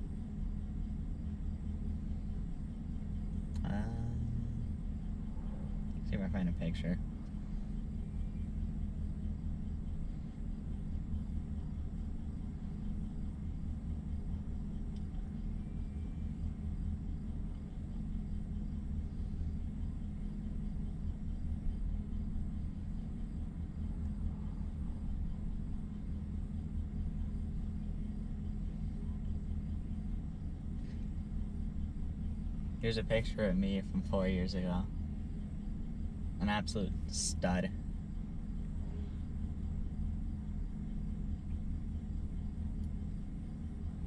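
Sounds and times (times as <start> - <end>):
low hum: 0.0 - 44.0
truck engine idling: 0.0 - 44.0.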